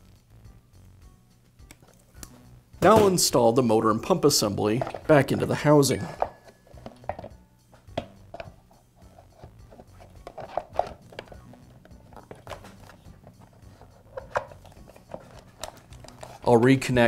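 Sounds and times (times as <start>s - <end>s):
soft background music: 0.0s - 17.0s
plastic and metal clicks and knocks: 13.8s - 16.4s.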